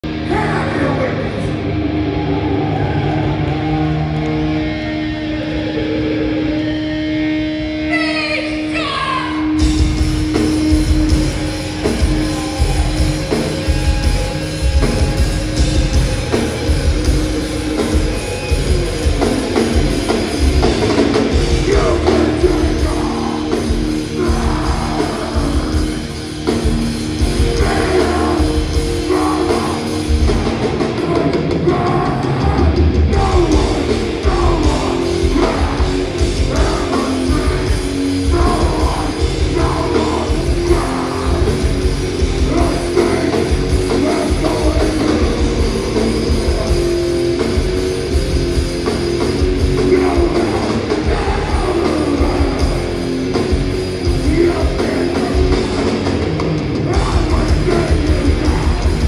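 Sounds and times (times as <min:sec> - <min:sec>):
vocals: 0:00.0 - 0:03.9, 0:07.7 - 0:59.0
drum kit: 0:00.0 - 0:08.1, 0:09.4 - 0:59.0
distorted guitars: 0:00.0 - 0:59.0
hardcore band playing live: 0:00.0 - 0:59.0.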